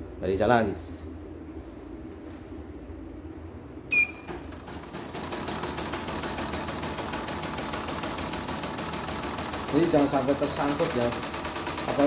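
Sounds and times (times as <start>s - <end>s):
machine beep: 3.9s - 4.4s
embroidery machine stitching clatter: 4.3s - 12.0s.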